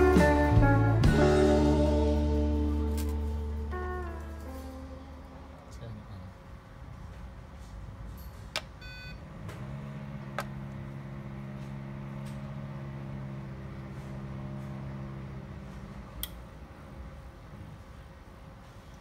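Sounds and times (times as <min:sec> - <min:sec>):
low electrical hum: 0:00.0 - 0:19.0
short electronic beep: 0:08.8 - 0:09.2
switch click: 0:16.2 - 0:16.4.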